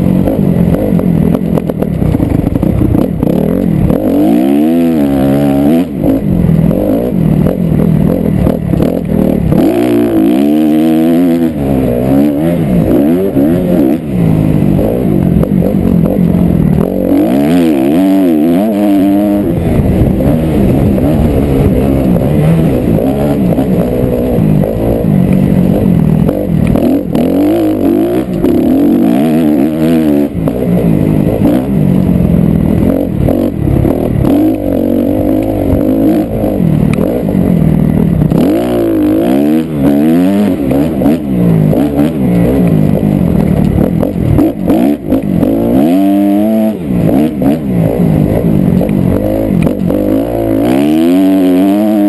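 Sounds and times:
dirt bike engine revving: 0.0 - 52.0.

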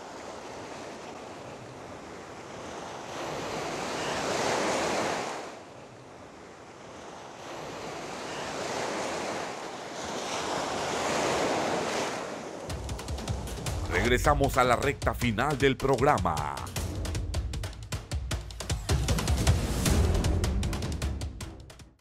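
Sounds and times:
sea surf washing in: 0.0 - 16.9.

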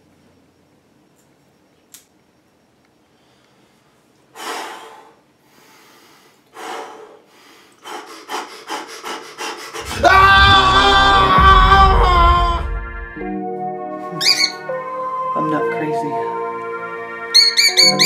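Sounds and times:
loud music with sustained tones: 9.8 - 18.0.

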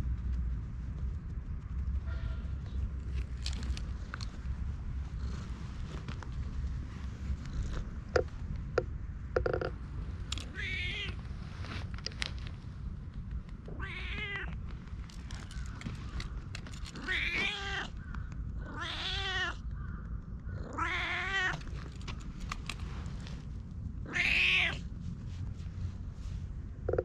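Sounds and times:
faint clicks: 0.0 - 23.7
cat meowing: 10.4 - 11.2, 13.7 - 14.6, 16.9 - 18.0, 18.6 - 19.7, 20.6 - 21.7, 24.1 - 24.8.

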